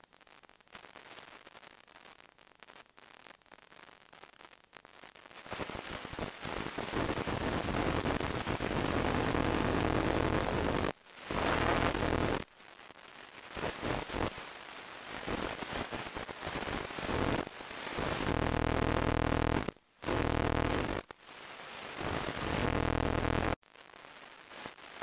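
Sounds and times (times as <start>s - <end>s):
static hiss: 0.0s - 25.0s
low buzz: 22.6s - 23.6s.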